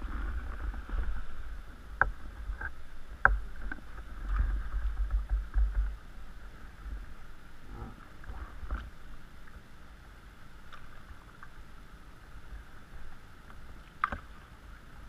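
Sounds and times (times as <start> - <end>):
low microphone rumble: 0.0 - 15.0
water lapping at boat hull: 10.5 - 15.0.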